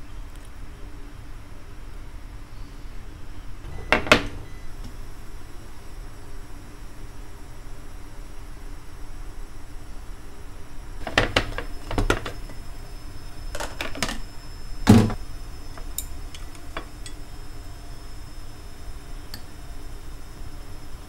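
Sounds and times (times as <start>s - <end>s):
objects clicking and knocking: 11.0s - 12.6s, 13.6s - 14.2s.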